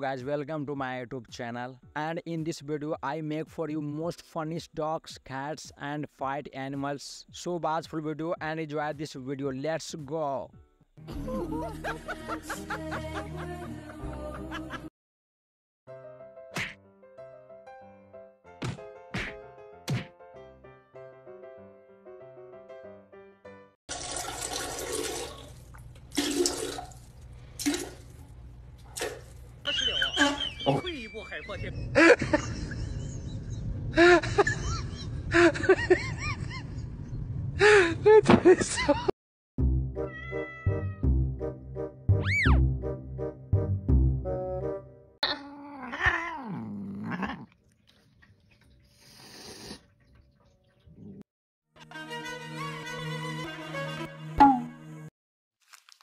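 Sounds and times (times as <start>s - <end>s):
background music: 0.0s - 5.9s, 6.5s - 14.9s, 39.6s - 45.2s, 51.8s - 55.1s
water splashing in toilet bowl: 23.9s - 28.3s, 29.0s - 29.4s
cat yowling: 40.1s - 41.0s, 45.3s - 47.5s
cat hissing: 49.0s - 49.8s.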